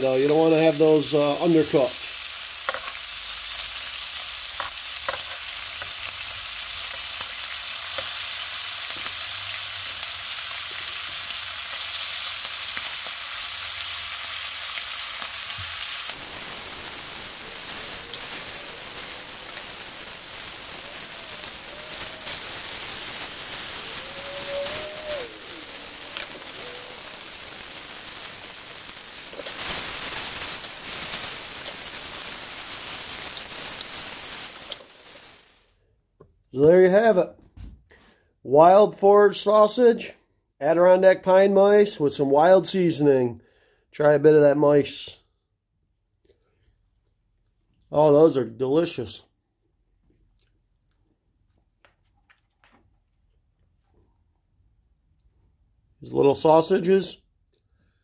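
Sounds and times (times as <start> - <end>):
meat sizzling in butter: 0.0 - 35.7.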